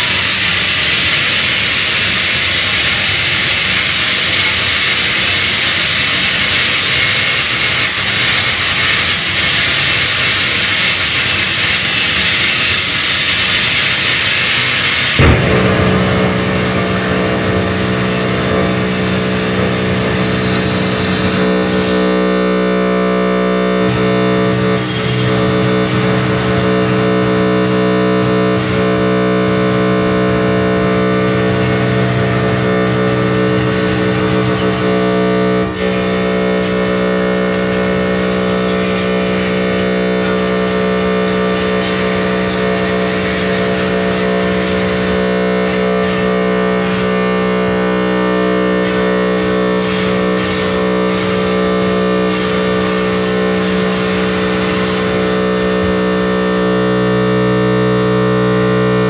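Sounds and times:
electronic drone music: 0:00.0 - 0:59.0
high hiss: 0:20.1 - 0:35.8.

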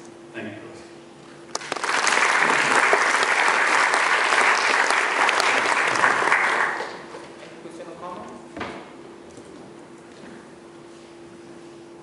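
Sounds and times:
audience applauding: 0:01.5 - 0:07.4.

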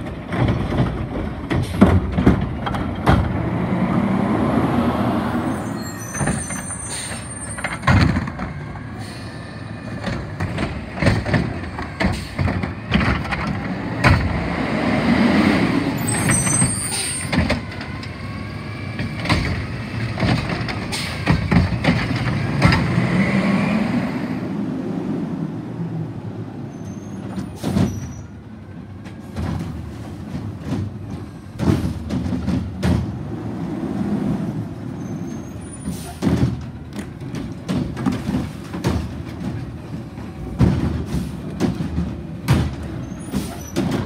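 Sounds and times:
diesel engine under load: 0:00.0 - 0:44.0
air brake hisses: 0:09.0 - 0:09.5
plastic cart knocking and banging: 0:36.2 - 0:39.8, 0:40.5 - 0:43.0.

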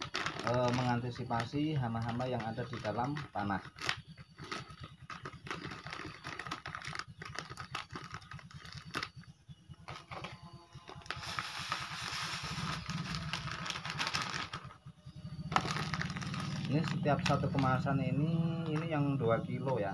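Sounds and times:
plastic packet crinkling: 0:00.0 - 0:09.2, 0:10.9 - 0:14.7, 0:15.5 - 0:19.0
granules pouring hiss: 0:11.2 - 0:13.1.

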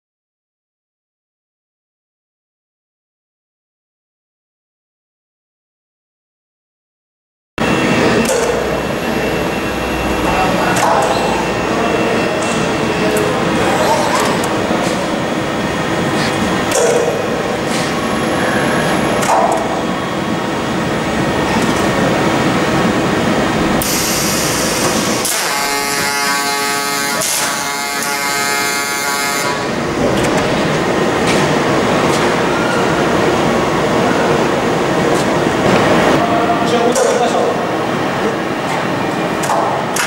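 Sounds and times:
whine of even tones: 0:07.6 - 0:13.9
steady machine noise: 0:07.6 - 0:40.0.

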